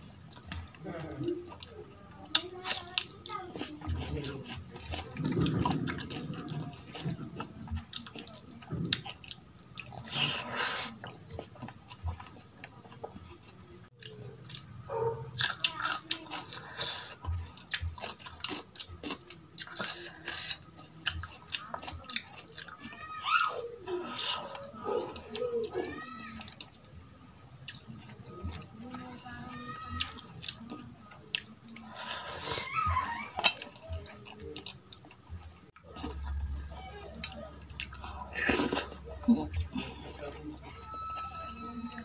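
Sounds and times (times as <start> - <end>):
chewing and lip smacks: 2.4 - 22.9, 30.0 - 32.5.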